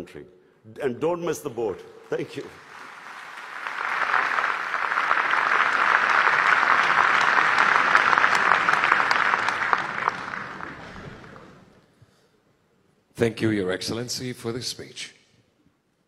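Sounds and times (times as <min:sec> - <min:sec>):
audience applauding: 0:02.1 - 0:11.8.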